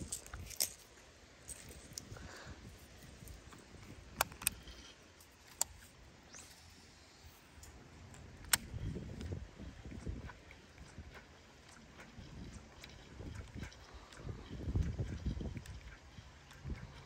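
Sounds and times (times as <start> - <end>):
faint outdoor background: 0.0 - 17.0.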